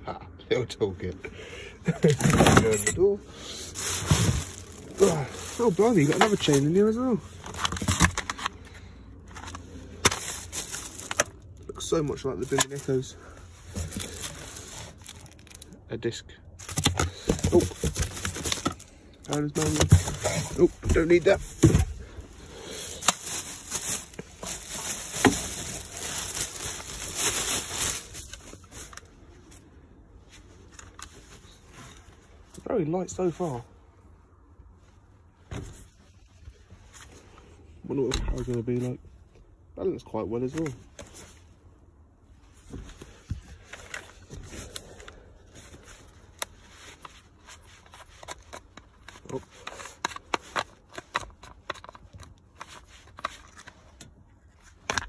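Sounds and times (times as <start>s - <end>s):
plastic bag crinkling: 3.7s - 8.3s, 9.9s - 11.5s, 22.5s - 28.8s.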